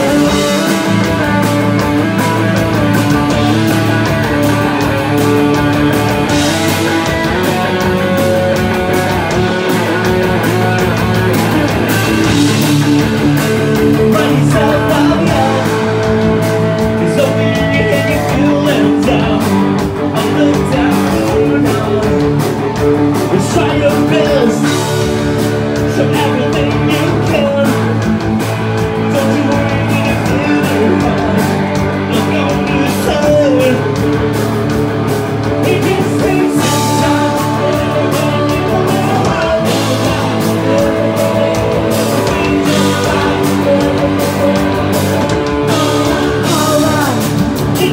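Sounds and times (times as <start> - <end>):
bass guitar: 0.0 - 47.9
drums: 0.0 - 47.9
electric guitar: 0.0 - 47.9
people singing into microphones: 35.6 - 47.9.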